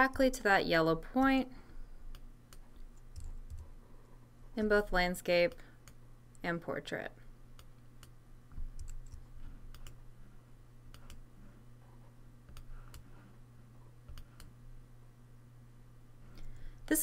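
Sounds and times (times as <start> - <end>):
low steady hum: 0.0 - 17.0
computer mouse clicks: 7.6 - 10.0, 10.9 - 11.2, 12.5 - 13.1, 14.1 - 14.5.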